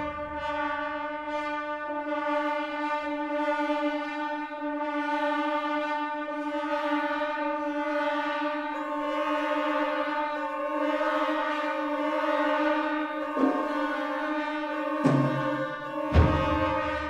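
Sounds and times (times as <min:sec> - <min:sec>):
brass chord held notes: 0:07.6 - 0:17.0.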